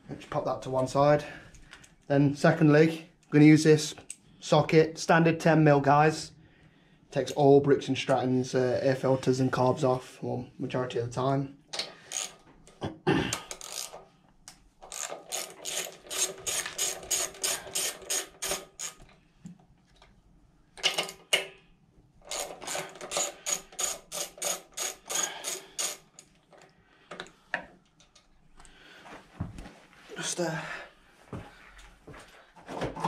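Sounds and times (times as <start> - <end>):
socket ratchet clicking: 11.8 - 12.4, 13.5 - 14.0, 14.8 - 19.0, 22.3 - 26.3.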